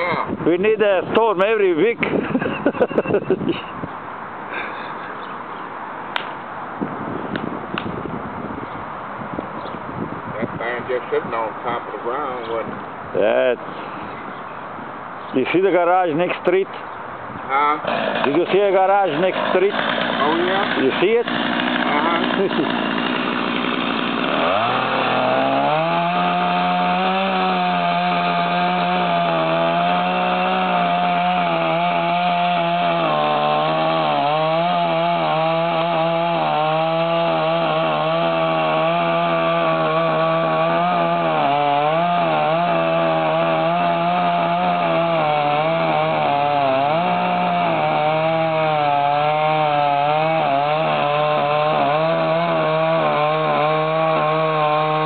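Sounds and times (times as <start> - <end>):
chainsaw cutting wood: 17.8 - 55.0.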